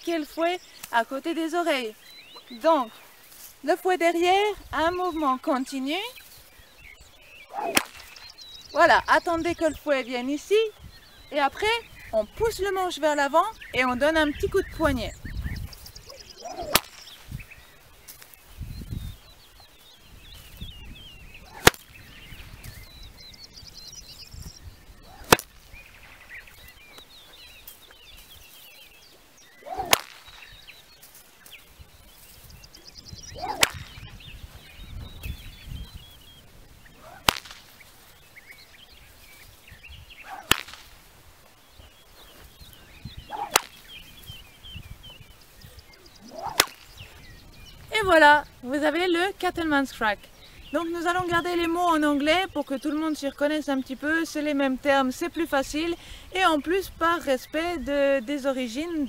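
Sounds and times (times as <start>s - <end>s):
whip cracking: 7.5s - 8.4s, 16.4s - 17.3s, 21.5s - 22.0s, 25.1s - 25.7s, 29.6s - 30.5s, 33.4s - 34.1s, 37.0s - 37.9s, 40.2s - 41.1s, 43.3s - 43.9s, 46.2s - 47.0s.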